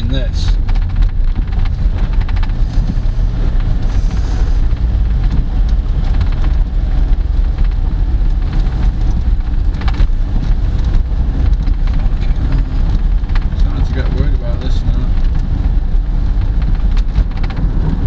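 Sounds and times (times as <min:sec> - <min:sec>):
rain spattering on car: 0:00.0 - 0:18.0
road and engine rumble: 0:00.0 - 0:18.0.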